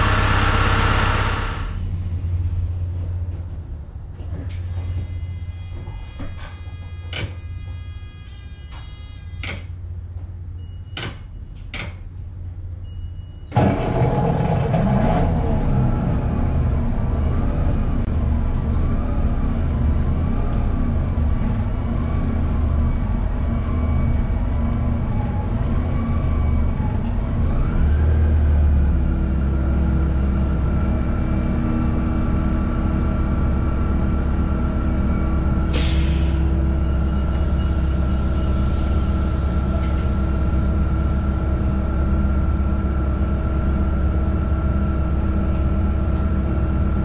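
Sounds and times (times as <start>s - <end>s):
wavering engine whine: 0.0s - 2.3s
bus engine idling: 0.0s - 4.9s, 11.4s - 47.0s.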